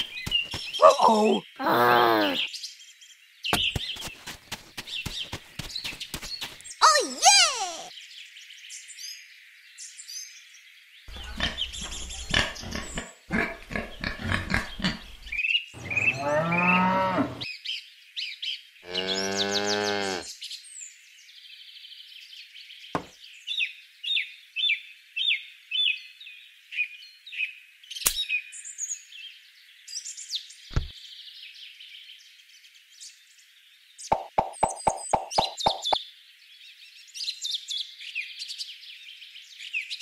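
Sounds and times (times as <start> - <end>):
small birds chirping: 0.0 - 26.1, 26.8 - 40.0
cow mooing: 15.8 - 17.4, 18.8 - 20.3.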